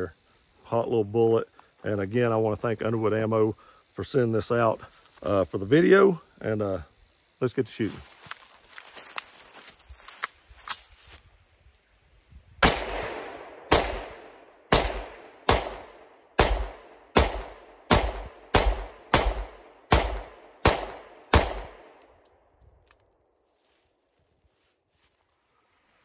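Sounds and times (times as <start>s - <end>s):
pistol shots with echo: 12.6s - 22.0s
pistol handling clicks: 20.0s - 23.2s.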